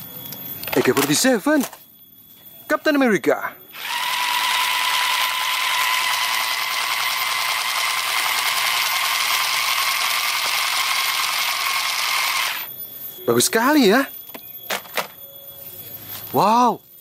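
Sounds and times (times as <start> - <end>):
toy machine-gun rattle: 3.8 - 12.7.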